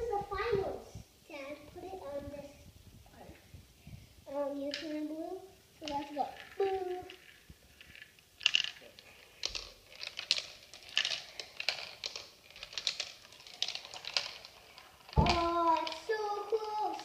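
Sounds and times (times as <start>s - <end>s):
marbles rolling down plastic run: 5.8s - 17.0s.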